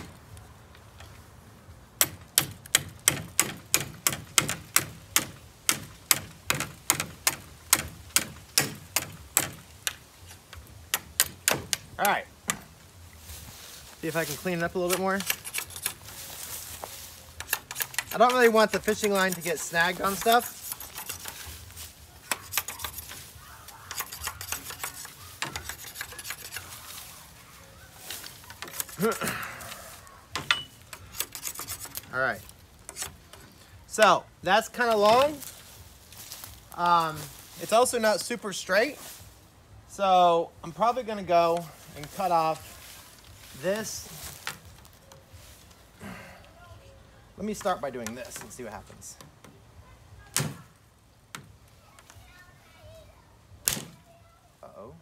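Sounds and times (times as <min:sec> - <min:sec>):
blade chopping bamboo: 0:02.0 - 0:12.7, 0:14.8 - 0:16.2, 0:17.4 - 0:21.6, 0:22.2 - 0:26.9, 0:30.4 - 0:32.1
blade scraping bamboo cane: 0:13.2 - 0:33.7, 0:41.6 - 0:44.6.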